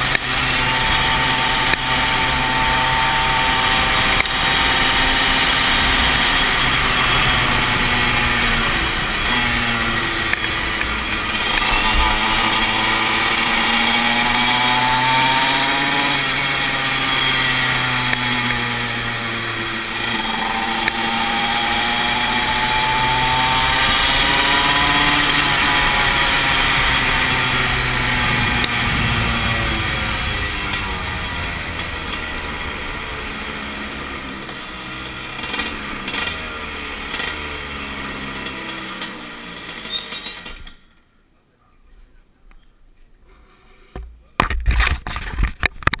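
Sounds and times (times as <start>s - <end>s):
kart engine revving: 0.0s - 40.8s
rustling and scraping on microphone: 42.6s - 46.0s.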